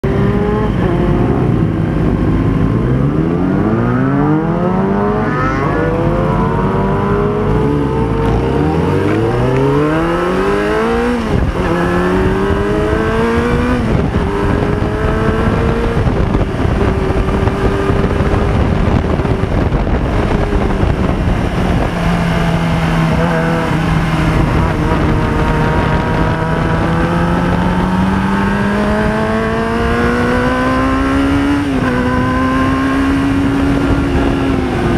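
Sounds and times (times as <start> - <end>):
motorcycle engine accelerating: 0.0 - 34.9.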